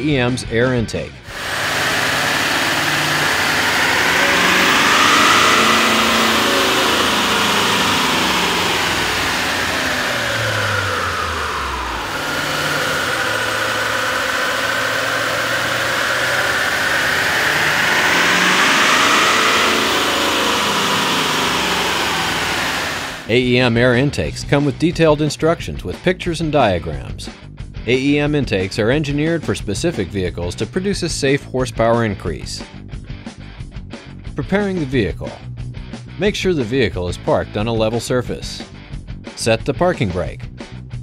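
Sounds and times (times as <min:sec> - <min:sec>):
diesel engine revving: 0:01.3 - 0:23.8.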